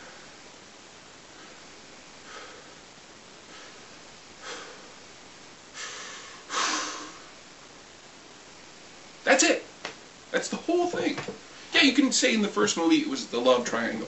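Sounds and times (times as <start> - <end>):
faint room hiss: 0.0 - 14.0
man breathing through nose: 1.3 - 5.1, 5.7 - 7.4.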